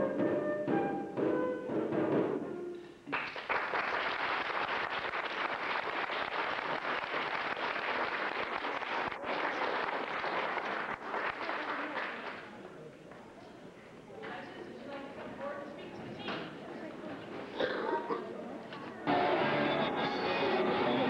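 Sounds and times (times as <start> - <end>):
music: 0.0 - 3.1, 19.0 - 21.0
audience applause: 3.1 - 12.6.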